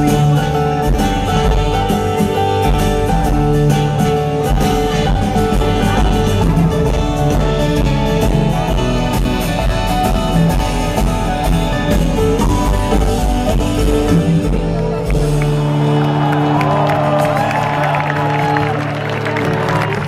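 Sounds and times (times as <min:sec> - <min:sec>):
live band playing: 0:00.0 - 0:20.0
crowd cheering: 0:14.1 - 0:20.0.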